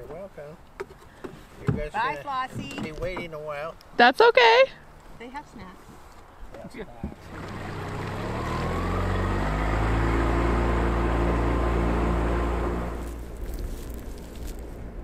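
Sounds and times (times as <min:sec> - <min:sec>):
outboard motor running: 0:07.2 - 0:13.3.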